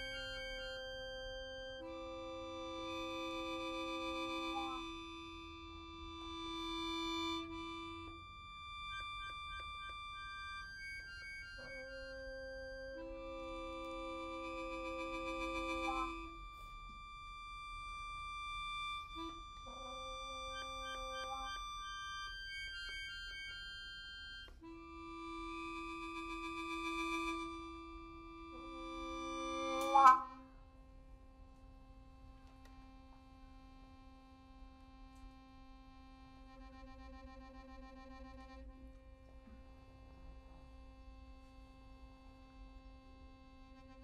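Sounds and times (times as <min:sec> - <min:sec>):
trumpet holding long notes: 0:00.0 - 0:16.9, 0:24.6 - 0:30.4
accordion: 0:00.0 - 0:44.0
trumpet: 0:11.6 - 0:16.8, 0:24.7 - 0:30.5.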